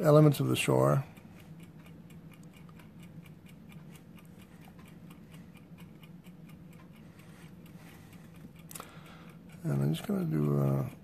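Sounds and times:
faint rapid ticking: 0.0s - 11.0s
low steady hum: 0.0s - 11.0s.

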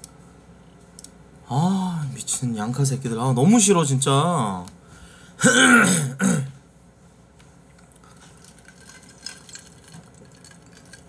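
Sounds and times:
faint small clicks: 1.0s - 1.2s.

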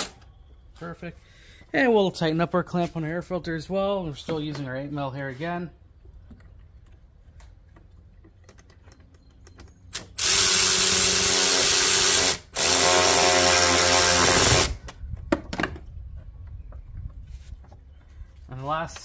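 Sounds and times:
electric ratchet running: 10.0s - 14.8s.

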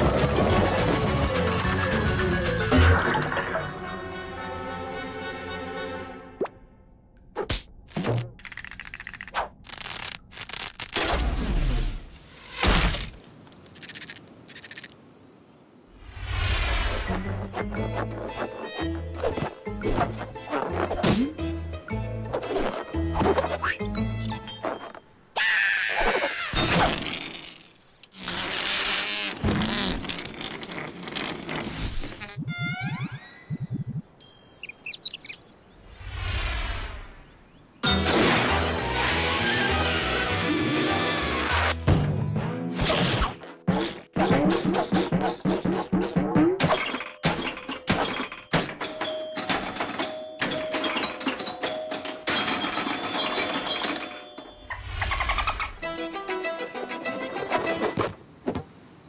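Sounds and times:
chirpy warbling whistles: 23.6s - 24.5s, 27.5s - 28.2s, 32.4s - 36.0s
pinball knocks and bell dings: 47.2s - 54.7s.

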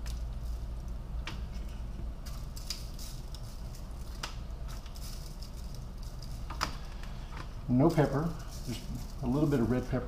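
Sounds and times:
salt sprinkling ticks: 2.4s - 6.6s.

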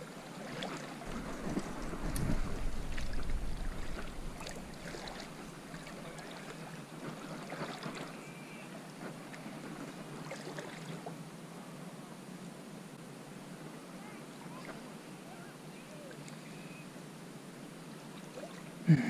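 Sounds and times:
feet splashing through shallow water: 0.0s - 8.4s, 9.1s - 11.1s
low rumble on microphone: 1.0s - 6.6s.

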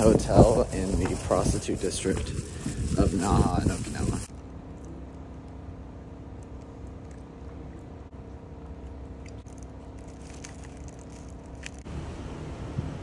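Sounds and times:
small crackles: 0.0s - 11.9s
steady low hum: 0.0s - 13.0s
person chewing: 6.4s - 11.8s
plastic bag crinkling: 8.8s - 11.9s.

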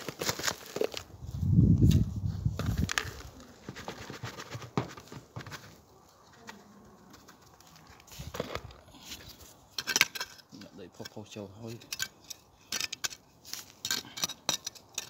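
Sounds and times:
trowel scraping garden soil: 7.2s - 15.0s.

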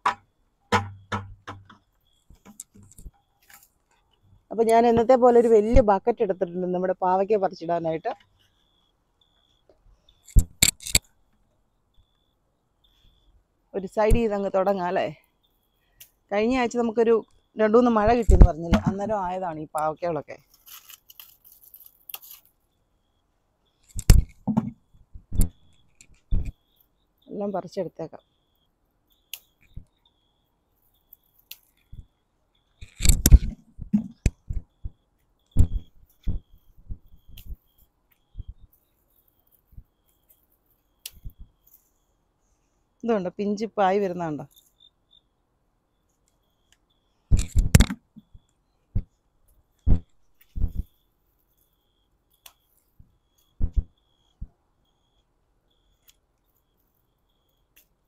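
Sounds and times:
soft knocks: 0.0s - 1.8s
faint high chirps: 0.8s - 20.5s, 33.9s - 47.4s, 50.3s - 58.0s
leaves rustling and snapping: 20.4s - 22.5s.

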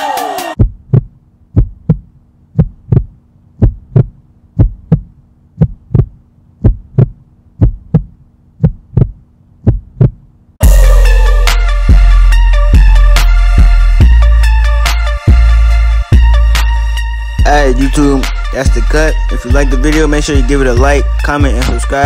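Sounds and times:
loud music with a beat: 0.0s - 0.6s, 10.6s - 22.0s
heartbeat thumps: 0.6s - 10.3s
steady low hum: 0.6s - 10.6s.

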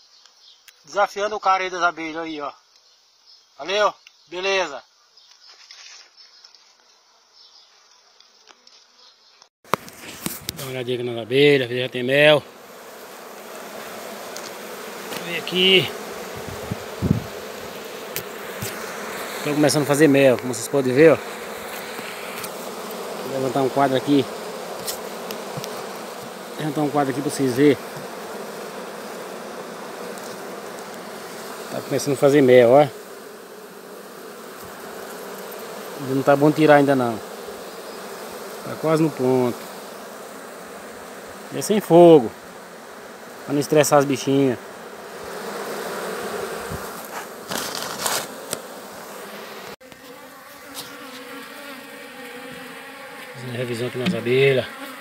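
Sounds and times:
bees buzzing: 8.8s - 55.0s
handling rustles: 46.6s - 48.7s.

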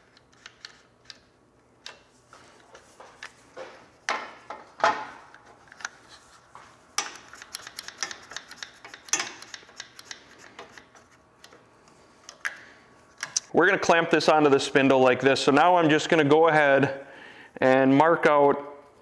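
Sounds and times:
clamp clicks: 7.0s - 11.6s.

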